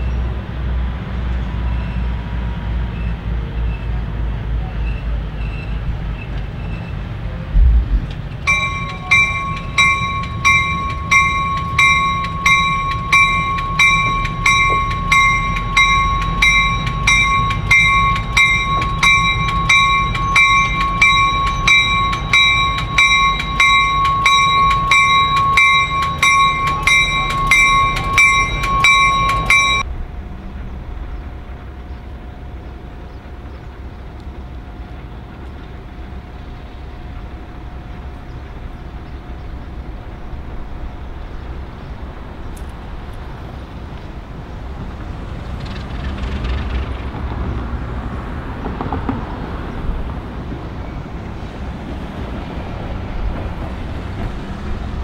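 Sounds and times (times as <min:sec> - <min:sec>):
diesel train rumble: 0:00.0 - 0:55.0
railroad bell ringing: 0:08.3 - 0:45.1.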